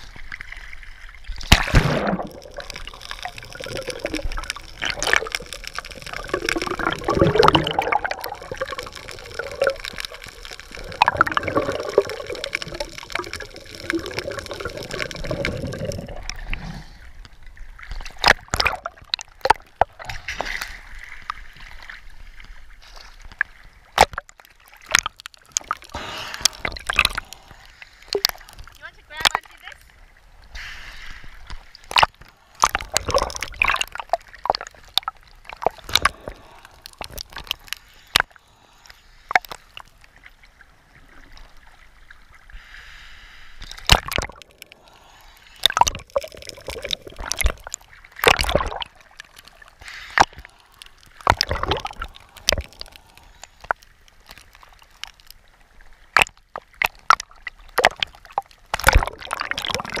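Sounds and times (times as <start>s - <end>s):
water sloshing and gurgling: 0.0s - 60.0s
water splashes: 0.0s - 60.0s.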